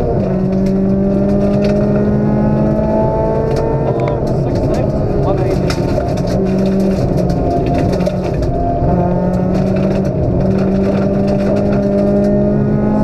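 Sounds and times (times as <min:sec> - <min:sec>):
car engine revving from cabin: 0:00.0 - 0:04.4, 0:07.9 - 0:13.0.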